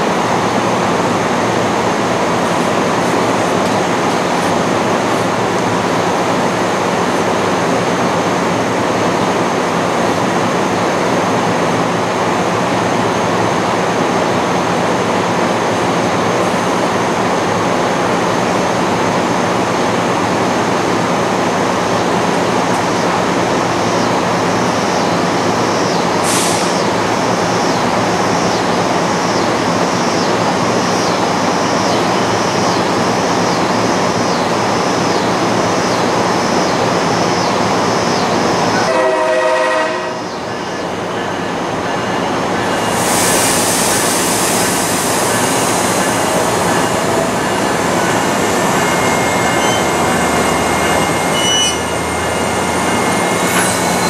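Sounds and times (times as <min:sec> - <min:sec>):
short sharp hiss: 0:26.2 - 0:26.8
locomotive engine rumbling: 0:40.4 - 0:54.0.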